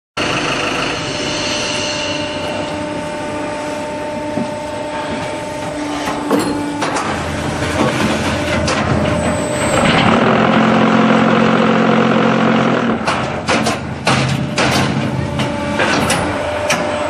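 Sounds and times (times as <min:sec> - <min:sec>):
machine hum and rattle: 0:00.2 - 0:17.0.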